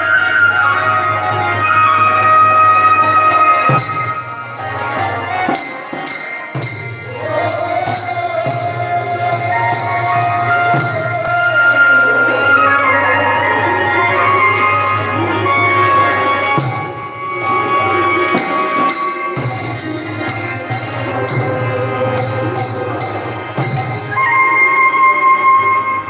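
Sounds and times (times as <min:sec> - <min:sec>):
devotional ensemble music: 0:00.0 - 0:26.0
hand cymbals struck: 0:03.7 - 0:12.0, 0:16.3 - 0:24.9.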